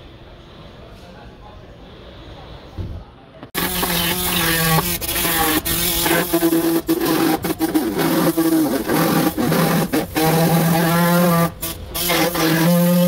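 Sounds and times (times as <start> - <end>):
air sander humming: 3.6 - 13.0.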